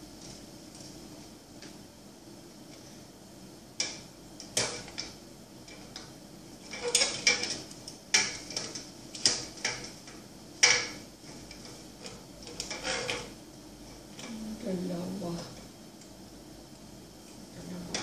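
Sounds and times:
light cover scraping: 0:03.8 - 0:14.4.

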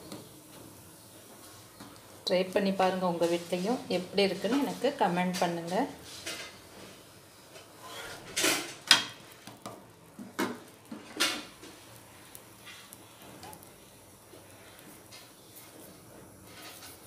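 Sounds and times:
faint sizzle: 0:00.0 - 0:17.0
spatula scraping a pan: 0:07.6 - 0:09.2, 0:14.7 - 0:17.0.

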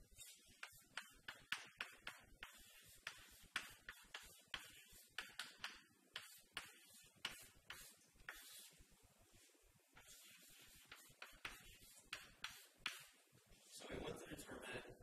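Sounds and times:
chalk scratching on a chalkboard: 0:00.0 - 0:08.8, 0:10.0 - 0:13.2.

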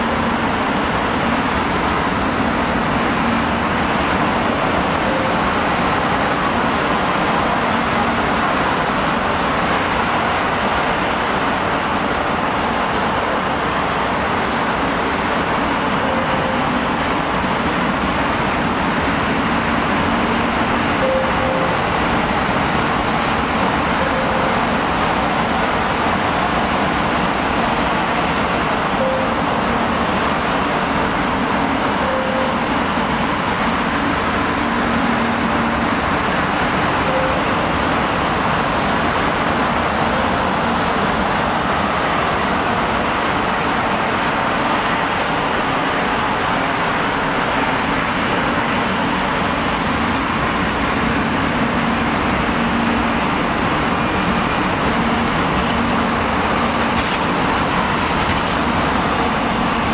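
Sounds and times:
vehicle traffic: 0:14.8 - 0:59.9.

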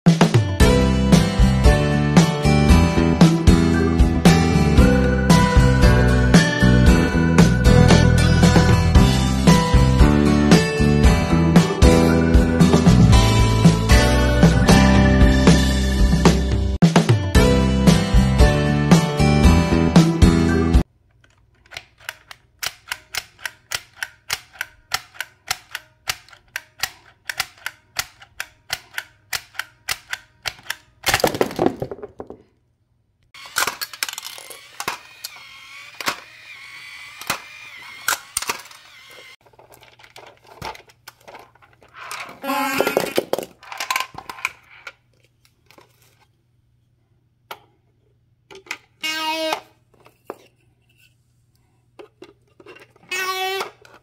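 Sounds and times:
plastic toys clattering: 0:21.0 - 0:32.6, 0:33.4 - 0:35.1, 0:39.4 - 0:46.3, 0:52.0 - 0:54.0
plastic toy mechanism clicking: 0:21.1 - 0:31.2, 0:33.4 - 0:36.4, 0:37.1 - 0:42.3
plastic clacks and rattles: 0:39.4 - 0:46.3, 0:52.0 - 0:54.0.

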